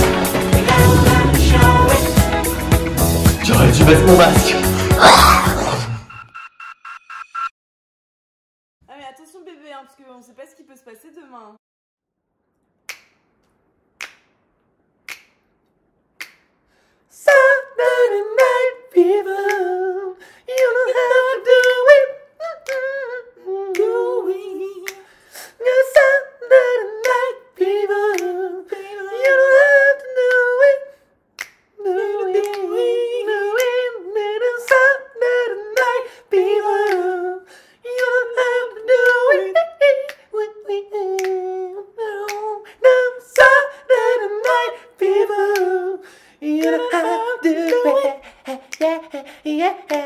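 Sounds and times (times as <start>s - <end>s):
person singing unaccompanied: 0.0s - 2.8s, 17.2s - 25.0s, 25.6s - 30.9s, 31.8s - 50.0s
finger snaps: 12.9s - 17.5s, 18.4s - 18.6s, 19.4s - 19.9s, 20.5s - 20.8s, 21.6s - 21.9s, 22.6s - 23.0s, 23.7s - 24.2s, 24.8s - 25.2s, 27.0s - 27.3s, 28.0s - 28.4s, 29.2s - 29.6s, 30.2s - 30.6s, 31.4s - 31.8s, 32.4s - 32.9s, 34.6s - 35.0s, 35.7s - 37.2s, 37.9s - 38.2s, 40.0s - 40.4s, 41.1s - 41.5s, 42.2s - 43.7s, 44.3s - 45.8s, 46.5s - 49.2s.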